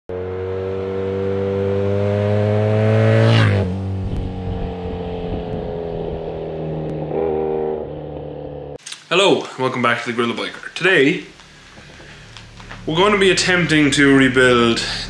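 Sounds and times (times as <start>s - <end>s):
motorcycle passing by: 0.1s - 8.8s.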